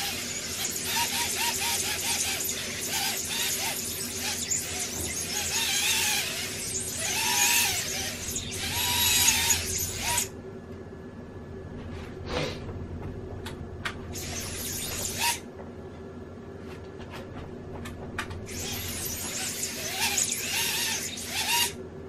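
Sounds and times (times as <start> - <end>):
drone motors whining: 0.0 - 10.4, 14.0 - 15.4, 18.2 - 21.8.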